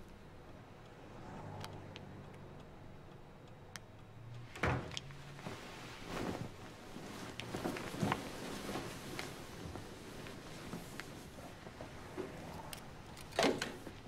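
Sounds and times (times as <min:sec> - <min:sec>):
bedclothes rustling: 0:05.3 - 0:14.0.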